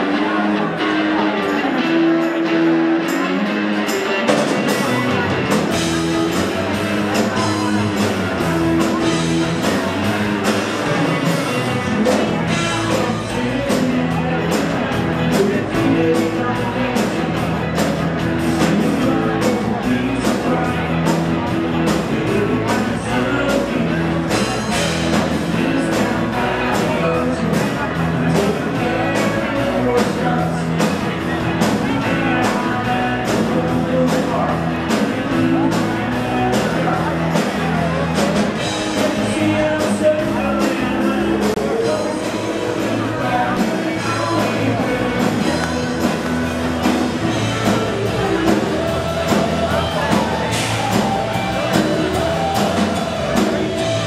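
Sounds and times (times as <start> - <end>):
live rock band playing: 0.0 - 54.0
singing: 10.6 - 54.0.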